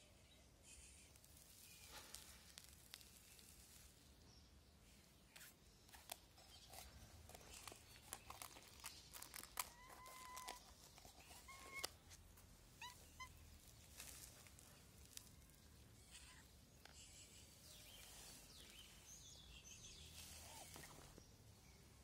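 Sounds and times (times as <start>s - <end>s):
cat meowing: 9.6s - 10.6s, 12.8s - 13.5s.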